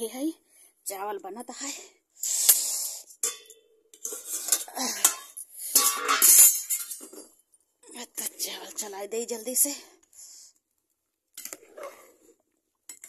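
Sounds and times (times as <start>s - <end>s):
metal lid and ladle clanking: 3.2s - 7.3s.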